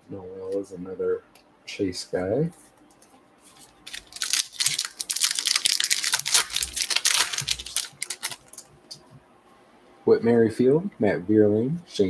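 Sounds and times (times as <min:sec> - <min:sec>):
foil wrapper crinkling and tearing: 0:03.8 - 0:08.7.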